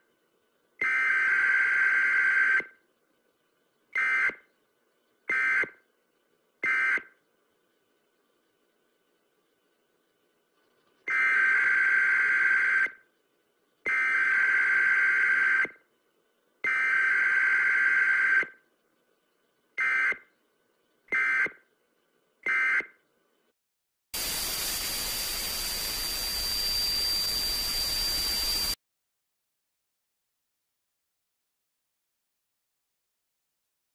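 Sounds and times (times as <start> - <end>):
static hiss: 24.2 - 28.8
thin high whine: 24.2 - 28.8.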